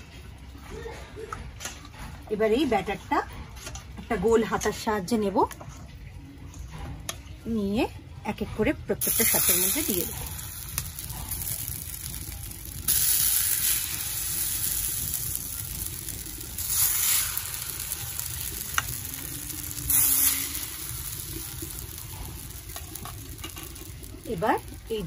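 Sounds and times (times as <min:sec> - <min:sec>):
batter sizzling in hot oil: 0:09.0 - 0:25.0.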